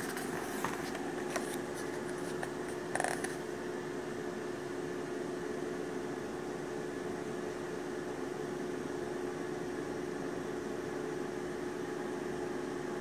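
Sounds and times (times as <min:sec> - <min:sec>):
pages rustling: 0:00.0 - 0:03.4
steady appliance hum: 0:00.0 - 0:13.0.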